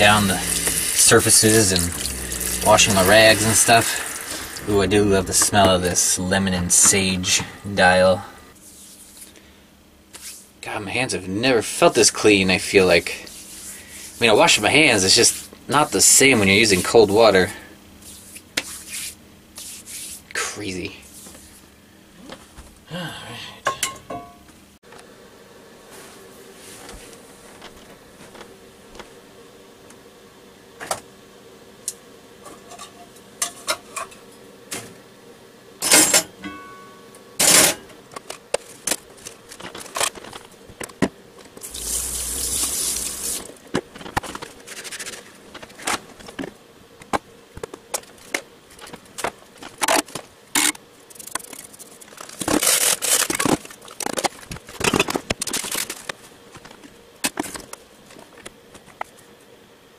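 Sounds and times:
tap running: 0.0s - 5.8s.

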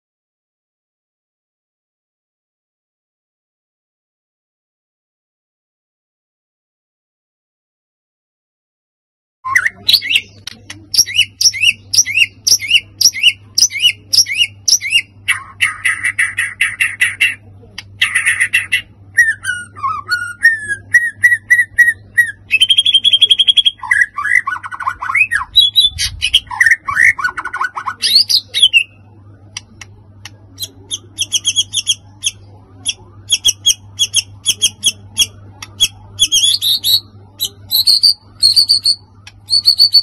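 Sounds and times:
bird singing whistled song: 9.5s - 17.2s, 18.0s - 29.0s, 30.6s - 40.0s
faint low hum: 9.5s - 40.0s.

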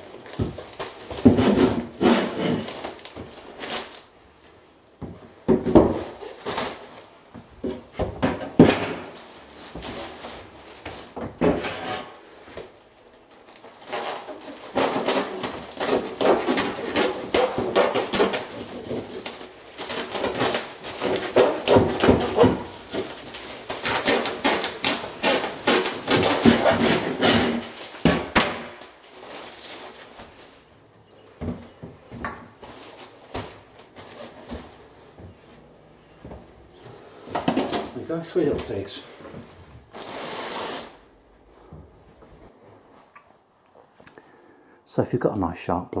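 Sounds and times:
handsaw sawing insulation: 23.8s - 27.9s.

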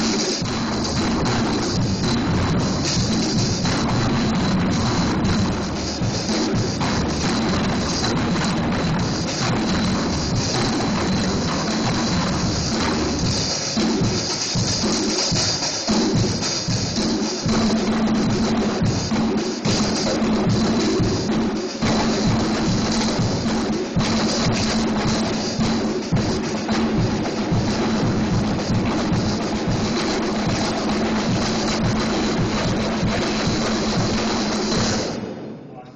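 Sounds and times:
fast drum beat: 0.0s - 35.3s
cymbals washing: 0.0s - 35.5s.

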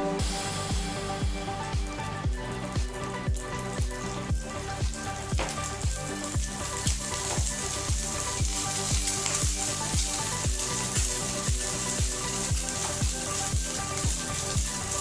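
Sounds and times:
background music with a beat: 0.0s - 15.0s
egg sizzling in a frying pan: 0.6s - 15.0s.

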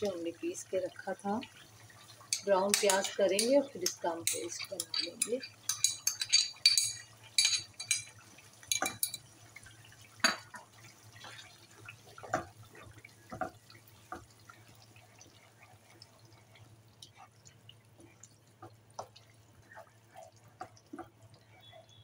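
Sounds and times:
metal spoon clinking and scraping: 2.3s - 3.6s, 4.2s - 8.1s
wooden spatula stirring thick gravy: 10.5s - 21.9s.

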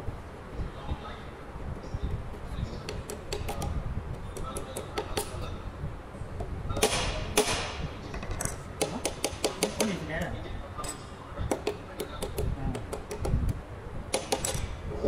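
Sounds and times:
hand tools clicking and tapping: 2.3s - 5.4s, 6.8s - 14.7s.

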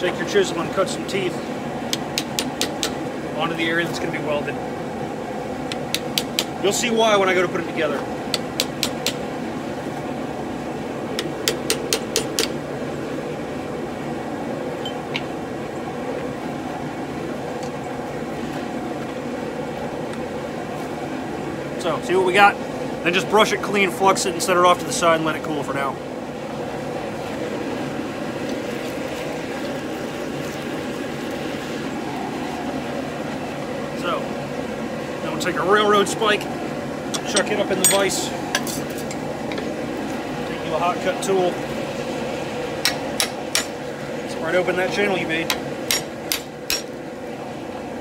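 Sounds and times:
steady background noise: 0.0s - 48.0s
hammer striking chisel: 1.9s - 3.0s, 5.7s - 6.5s, 8.3s - 9.2s, 11.4s - 12.5s, 42.8s - 43.7s, 45.5s - 46.9s.

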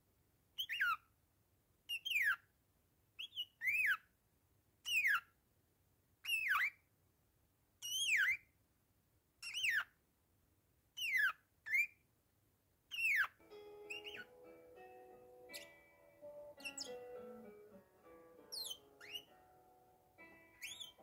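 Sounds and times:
parakeet whistled call: 3.2s - 4.0s, 6.3s - 6.8s, 7.8s - 8.4s, 9.5s - 9.9s, 12.9s - 13.3s, 13.9s - 14.4s, 16.5s - 17.0s, 18.5s - 19.4s, 20.6s - 21.0s.

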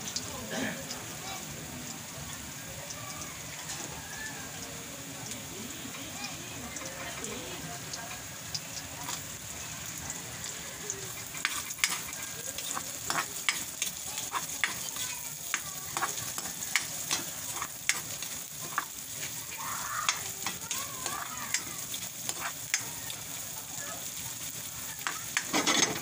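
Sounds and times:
onion and garlic sizzling in oil: 0.0s - 26.0s
metal spatula scraping wok: 11.1s - 19.5s, 20.1s - 22.8s, 25.0s - 26.0s.

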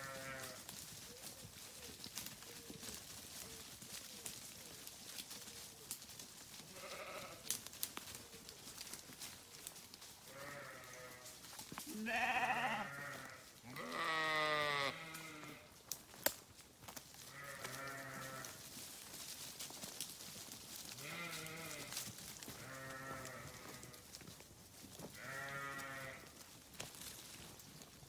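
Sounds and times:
sheep bleating: 0.0s - 0.6s, 6.7s - 7.4s, 10.3s - 11.3s, 11.9s - 15.7s, 17.3s - 18.6s, 21.0s - 24.1s, 25.2s - 26.3s.

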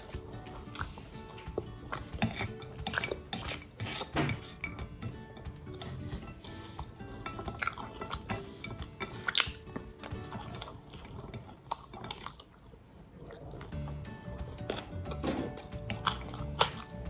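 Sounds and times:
chewing and wet mouth noises: 0.0s - 17.0s
soft background music: 0.0s - 17.0s.

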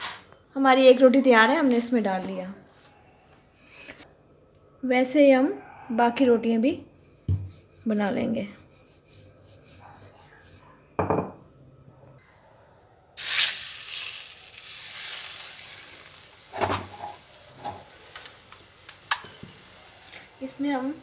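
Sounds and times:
dough sizzling on hot pan: 13.2s - 21.0s.

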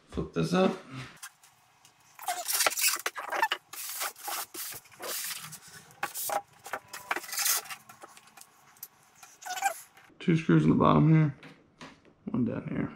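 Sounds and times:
foam packing rubbing and scraping: 2.1s - 10.1s.

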